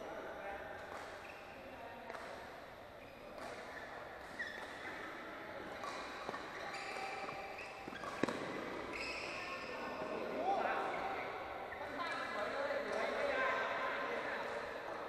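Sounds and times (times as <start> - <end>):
shoes squeaking on court floor: 0.8 - 15.0
racket striking shuttlecock: 5.8 - 9.0.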